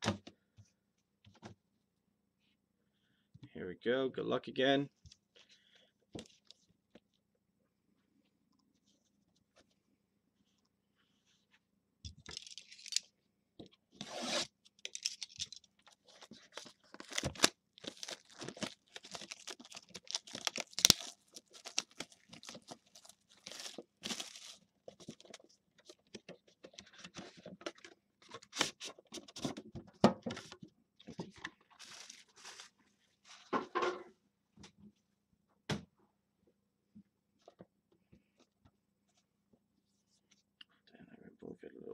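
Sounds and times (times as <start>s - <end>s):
plastic shrink wrap tearing: 16.5s - 24.6s.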